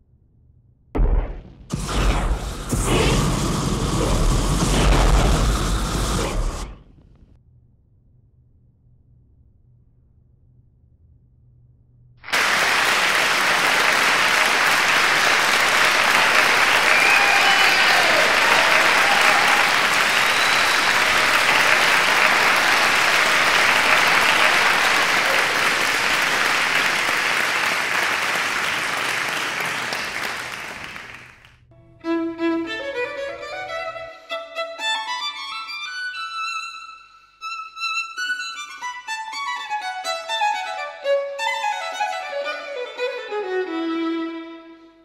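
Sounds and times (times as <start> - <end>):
audience applause: 12.3 - 31.6
violin melody: 31.7 - 45.0.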